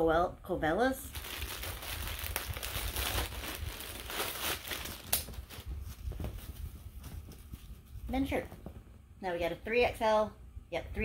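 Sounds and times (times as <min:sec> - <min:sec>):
plastic packaging crinkling: 0:01.1 - 0:08.0
cloth rustling: 0:01.1 - 0:09.0.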